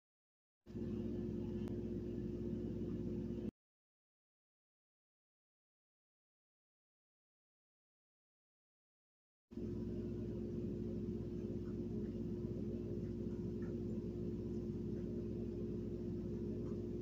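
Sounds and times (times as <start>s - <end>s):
steady low hum: 0.7s - 3.5s, 9.6s - 17.0s.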